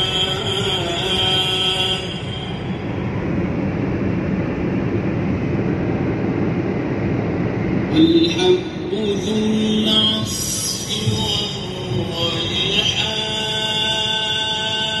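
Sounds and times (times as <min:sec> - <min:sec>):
chanted recitation: 0:00.0 - 0:03.0, 0:07.9 - 0:15.0.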